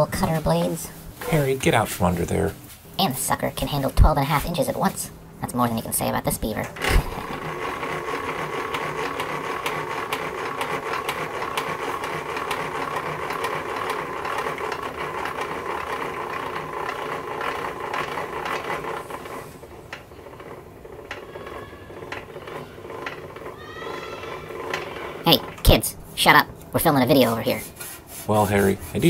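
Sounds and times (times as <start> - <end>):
planer crank clattering clicks: 5.7 - 27.3.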